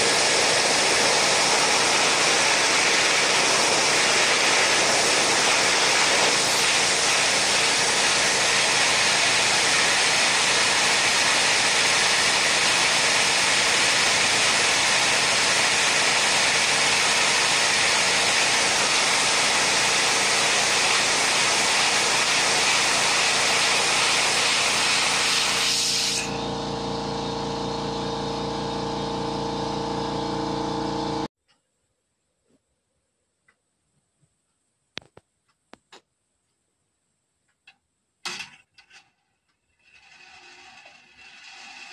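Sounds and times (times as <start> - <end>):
air blower rushing: 0.0 - 31.3
motor hum: 25.9 - 31.3.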